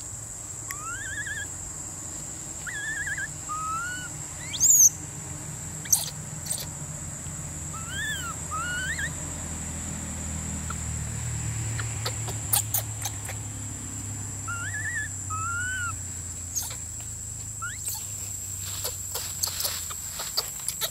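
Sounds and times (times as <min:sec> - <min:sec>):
chirping animal calls: 0:00.7 - 0:01.6, 0:02.6 - 0:05.0, 0:05.8 - 0:06.8, 0:07.7 - 0:09.4, 0:10.6 - 0:20.9.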